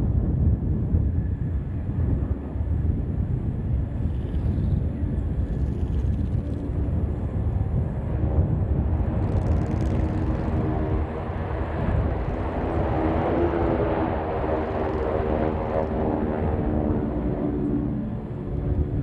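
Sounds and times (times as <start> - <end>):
propeller plane engine rumbling: 0.0 - 19.0.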